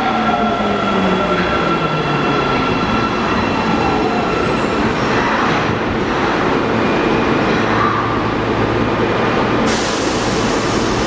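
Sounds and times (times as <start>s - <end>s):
subway train rumble: 0.0s - 11.0s
hiss of air: 9.7s - 11.0s.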